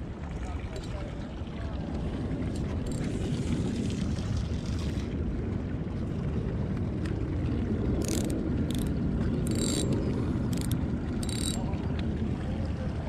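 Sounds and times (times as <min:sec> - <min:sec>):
wind noise on microphone: 0:00.0 - 0:13.0
fishing reel clicking rattle: 0:02.8 - 0:03.2, 0:08.0 - 0:11.7.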